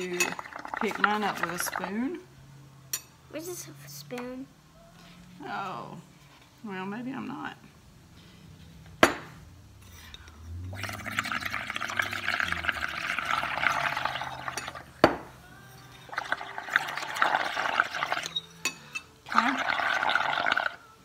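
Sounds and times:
bubbling through straws: 0:00.0 - 0:02.1, 0:10.7 - 0:14.9, 0:16.0 - 0:18.3, 0:19.3 - 0:20.8.

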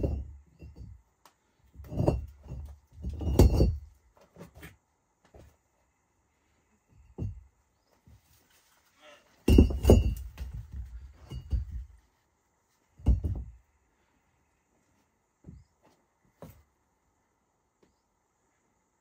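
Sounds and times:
stones knocking against each other: 0:01.8 - 0:03.8.

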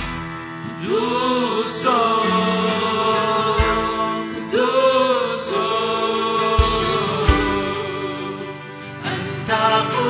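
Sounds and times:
worship band playing: 0:00.0 - 0:10.0
deep bass drum thump: 0:03.6 - 0:04.1, 0:06.6 - 0:07.7.

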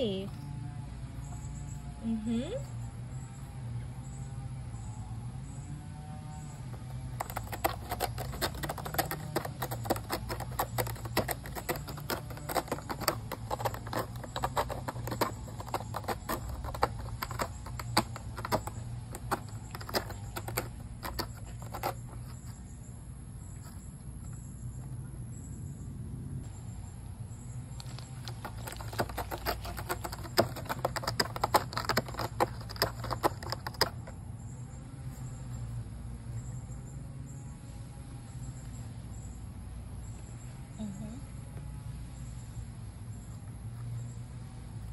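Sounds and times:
cat scratching cardboard: 0:06.2 - 0:24.9, 0:27.6 - 0:36.7.

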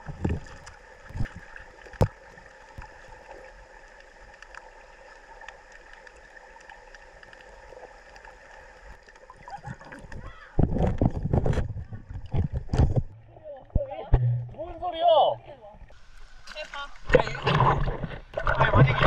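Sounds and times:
knocks underwater: 0:00.0 - 0:02.9, 0:10.0 - 0:14.9, 0:17.1 - 0:19.0
underwater stream hiss: 0:00.0 - 0:09.2
water movement: 0:00.0 - 0:19.0.

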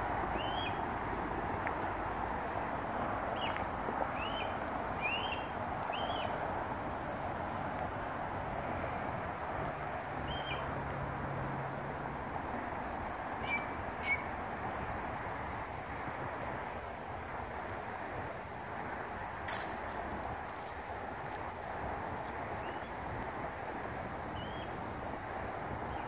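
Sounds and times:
steady background hiss: 0:00.0 - 0:26.0
bird calling: 0:13.4 - 0:14.3.

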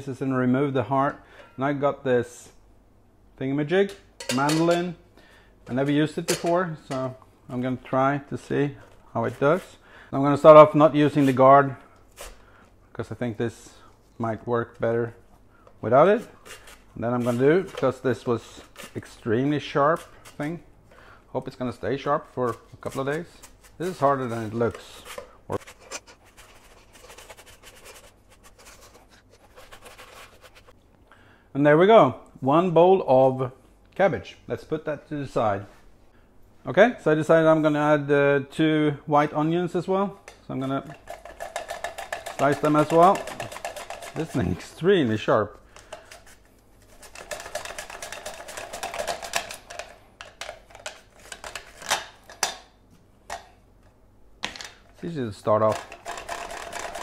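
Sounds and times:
cabbage scraping on mandoline blade: 0:16.3 - 0:20.5.

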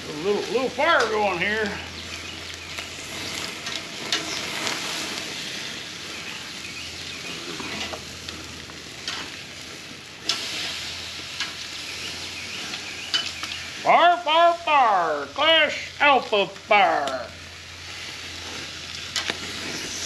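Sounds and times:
chicken sizzling on grill: 0:00.0 - 0:20.0
metal tongs clicking on grate: 0:09.0 - 0:09.3, 0:13.1 - 0:13.6.

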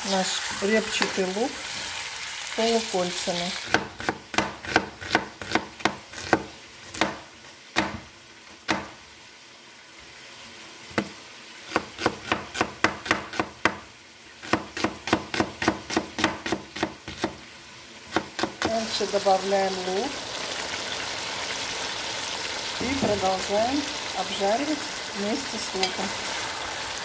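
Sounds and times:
knife chopping on wooden board: 0:03.7 - 0:07.2, 0:11.7 - 0:13.8, 0:14.4 - 0:17.4.

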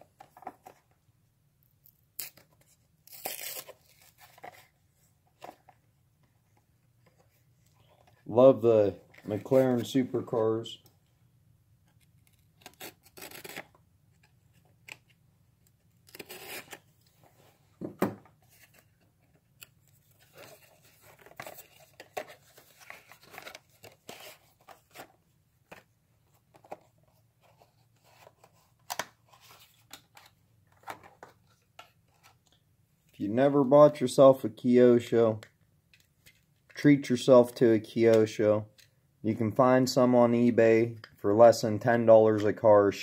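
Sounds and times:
packaging tearing and rustling: 0:02.2 - 0:04.7, 0:12.2 - 0:13.7, 0:16.0 - 0:16.8, 0:20.1 - 0:25.1.

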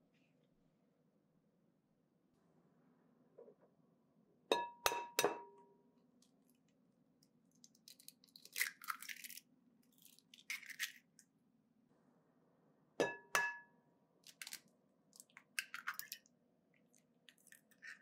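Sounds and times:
eggshell crackling: 0:07.4 - 0:11.2, 0:14.2 - 0:18.0.

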